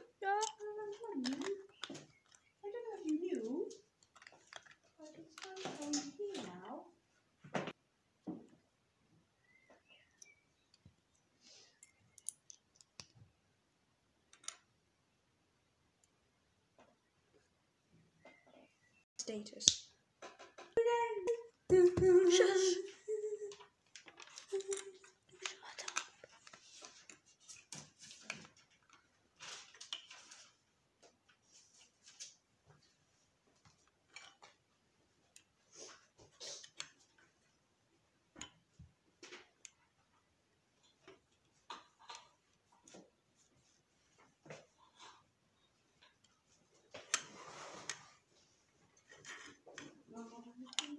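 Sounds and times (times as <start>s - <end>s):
plastic bricks clicking together: 0.3s - 2.6s, 11.8s - 13.2s, 14.3s - 14.7s, 23.5s - 27.2s, 50.7s - 50.9s.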